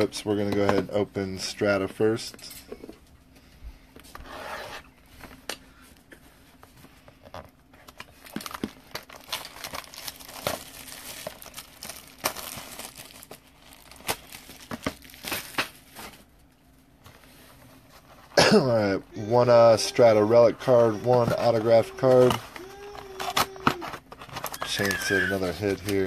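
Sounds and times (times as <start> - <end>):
plastic wrap crinkling and tearing: 7.8 - 16.3, 19.7 - 26.0.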